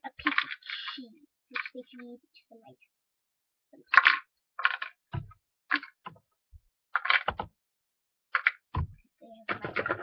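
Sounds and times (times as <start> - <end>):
plastic toy pieces clattering: 0.1 - 2.0, 3.9 - 5.1, 5.7 - 6.0, 6.9 - 7.5, 8.3 - 8.7.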